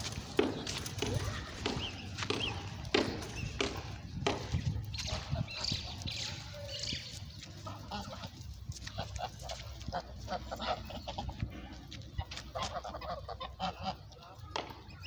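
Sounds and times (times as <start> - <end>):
geese honking: 7.6 - 14.4.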